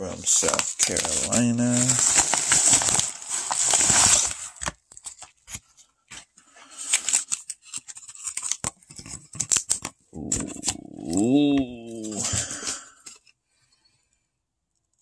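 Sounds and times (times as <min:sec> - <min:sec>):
paper mailer rustling: 0:00.3 - 0:04.7
cardboard sleeve being opened: 0:00.3 - 0:13.0.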